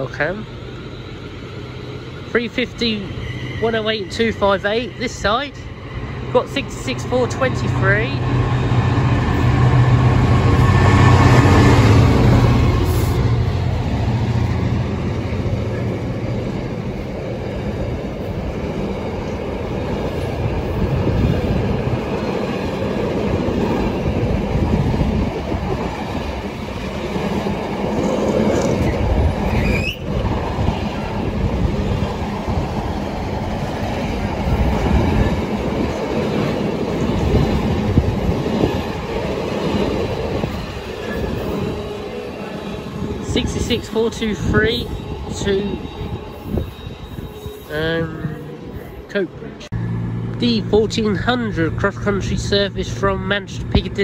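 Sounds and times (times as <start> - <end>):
diesel locomotive engine drone: 0.0 - 54.0
train wheels on rails: 0.0 - 54.0
wheel squeal: 28.8 - 30.1.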